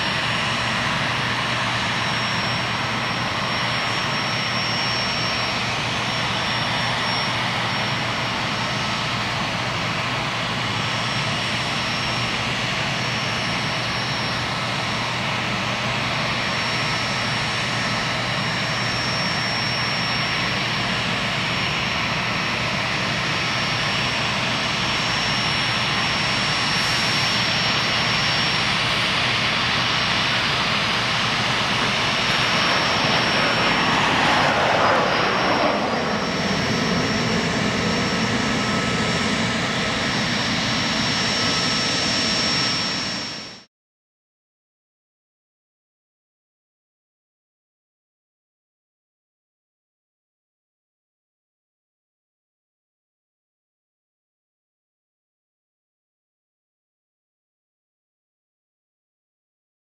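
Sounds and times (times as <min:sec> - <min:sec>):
jet engines at takeoff: 0:00.0 - 0:43.7.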